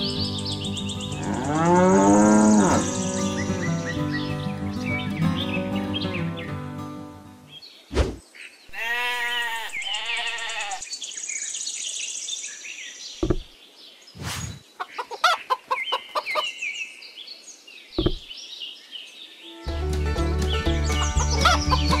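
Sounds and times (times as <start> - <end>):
sheep bleating: 8.7 - 10.8
knocks: 13.2 - 13.5, 18.0 - 18.2
chicken clucking: 14.8 - 16.5
high bird chirps: 17.9 - 18.4.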